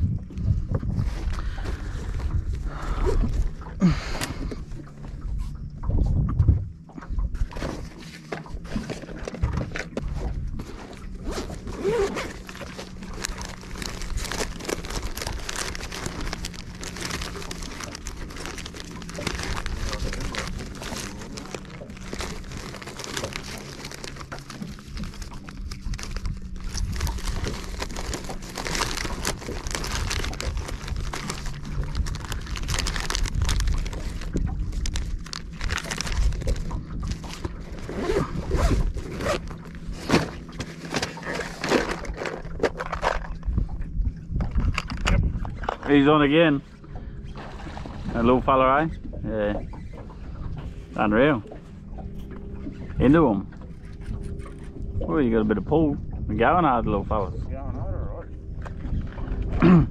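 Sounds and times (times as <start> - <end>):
low steady hum: 0.0 - 59.9
fishing reel rattling: 12.2 - 36.5.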